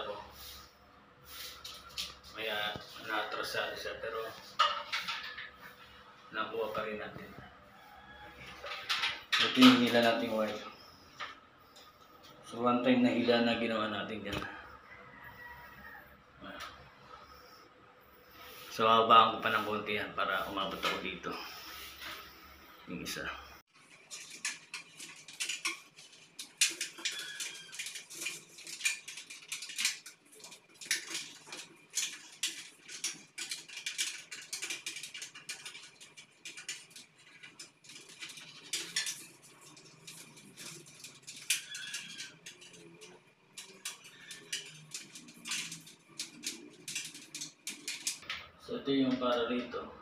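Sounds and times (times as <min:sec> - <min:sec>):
wire rubbing against metal grid: 0:15.4 - 0:22.5, 0:23.8 - 0:48.2.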